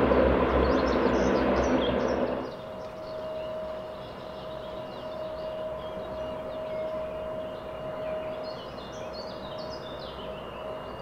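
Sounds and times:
birds chirping: 0:00.0 - 0:11.0
distant turboprop engines: 0:00.0 - 0:11.0.

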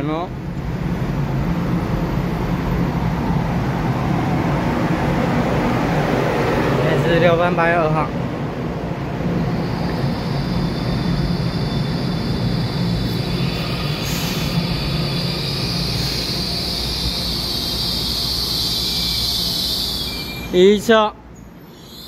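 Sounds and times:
train equipment low hum: 0:08.1 - 0:22.0
high whine: 0:09.4 - 0:22.0.

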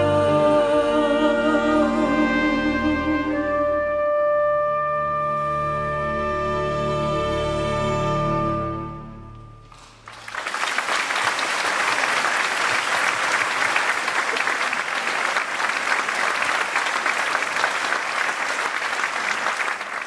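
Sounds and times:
orchestra and choir chord: 0:00.0 - 0:09.6
audience applause: 0:09.7 - 0:20.0.

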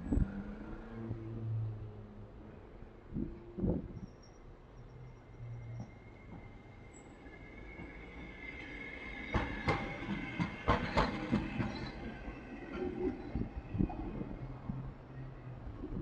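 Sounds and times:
tram whine: 0:00.0 - 0:16.0
wheels clacking over track joints: 0:07.6 - 0:14.9.

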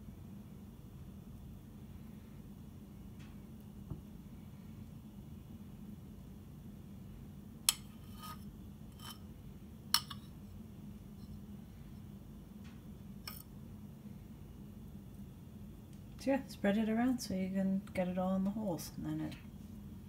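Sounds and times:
low steady hum: 0:00.0 - 0:20.0
spoon clinking on metal pan: 0:10.0 - 0:10.2.

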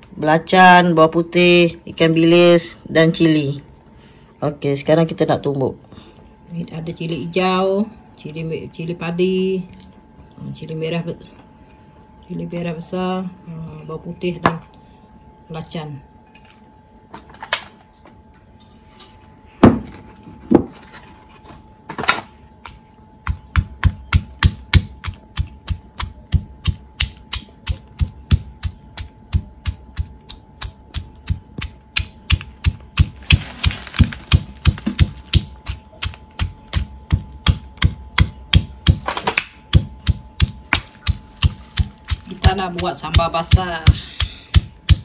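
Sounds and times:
stone pestle pounding in mortar: 0:23.2 - 0:39.1, 0:39.7 - 0:45.0.

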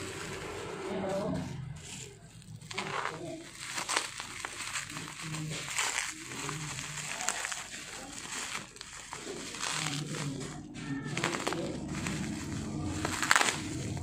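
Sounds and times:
bubble wrap crinkling: 0:00.0 - 0:14.0.

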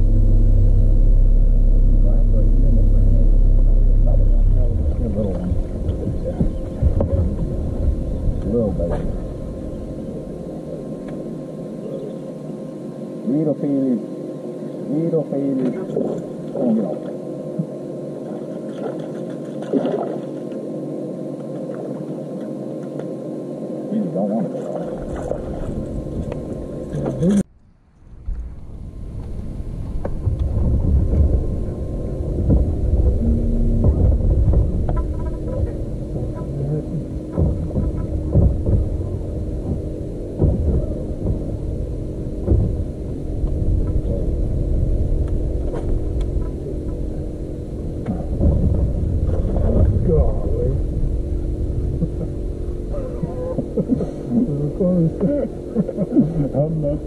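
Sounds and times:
electric motor humming: 0:00.0 - 0:27.5, 0:28.8 - 0:57.0
low rumble on boat deck: 0:00.0 - 0:57.0
dull thumps: 0:32.4 - 0:36.4, 0:37.0 - 0:44.0.

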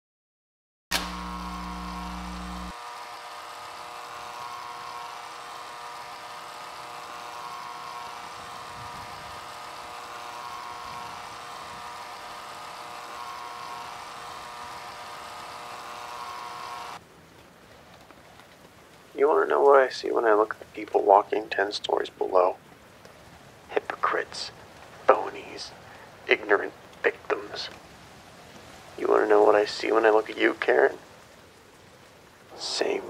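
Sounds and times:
switch click: 0:00.9 - 0:02.7
deeper hum: 0:00.9 - 0:17.0
electrical buzz with hiss: 0:00.9 - 0:17.0, 0:23.5 - 0:33.0.

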